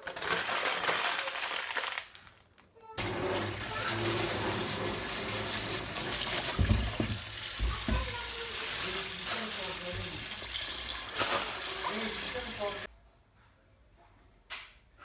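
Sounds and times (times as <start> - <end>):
bag crinkling: 0.0 - 2.6.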